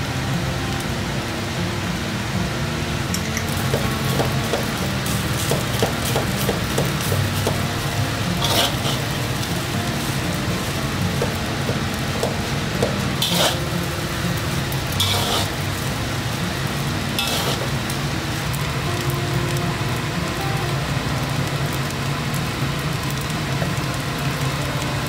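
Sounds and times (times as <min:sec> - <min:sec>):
rice sizzling in a wok: 0:00.0 - 0:25.0
metal spatula scraping wok: 0:03.4 - 0:18.0.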